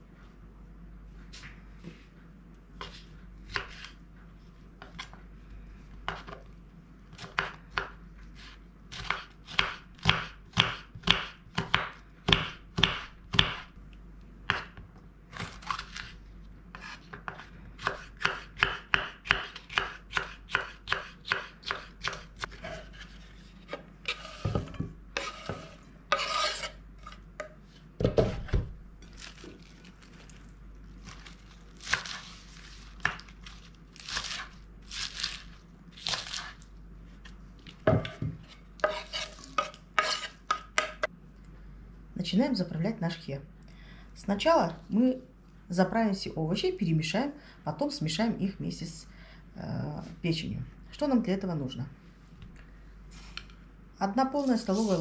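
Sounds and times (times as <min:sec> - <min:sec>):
knife chopping on wooden board: 0:08.9 - 0:13.7, 0:14.5 - 0:14.8, 0:16.7 - 0:23.0
knife scrape: 0:16.7 - 0:18.4, 0:19.6 - 0:27.2, 0:38.4 - 0:40.6, 0:54.3 - 0:55.0.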